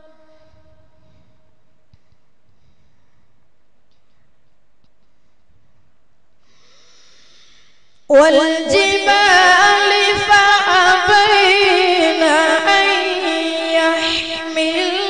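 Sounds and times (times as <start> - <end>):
boy reciting melodically: 8.1 - 15.0.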